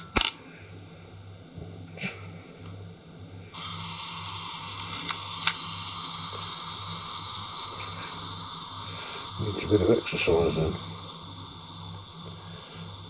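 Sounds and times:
self-timer buzzing whir: 0.0s - 13.0s
self-timer click: 3.6s - 12.4s.

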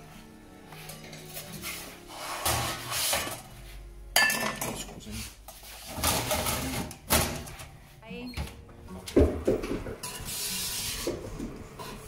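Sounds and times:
baking tray scraping oven rails: 1.0s - 3.5s, 5.8s - 7.6s, 9.5s - 12.0s.

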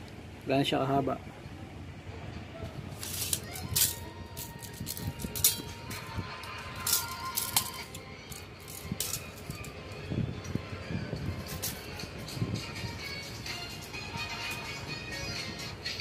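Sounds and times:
tape measure clicking and rattling: 2.9s - 10.0s, 11.4s - 12.0s.

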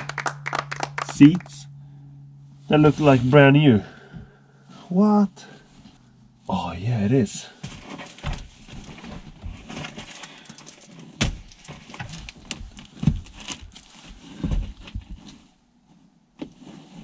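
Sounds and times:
fabric and vinyl rustling and scraping: 7.5s - 17.0s.

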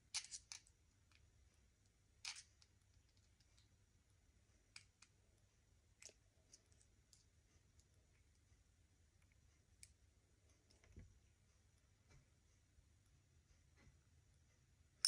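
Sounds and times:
small screwdriver clicks and scrapes: 0.1s - 0.7s, 2.2s - 2.5s.

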